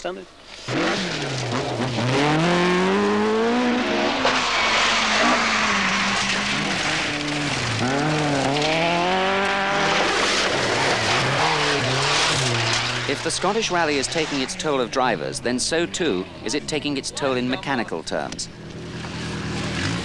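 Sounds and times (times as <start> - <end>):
rally car engine revving: 0.6 - 17.1, 18.0 - 20.0
tyres spraying gravel: 3.8 - 14.9.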